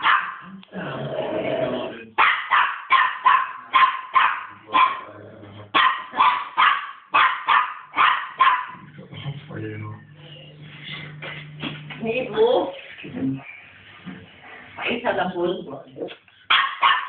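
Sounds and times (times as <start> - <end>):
dog barking: 0.0 - 0.5, 2.2 - 5.1, 5.7 - 8.8, 16.5 - 17.0.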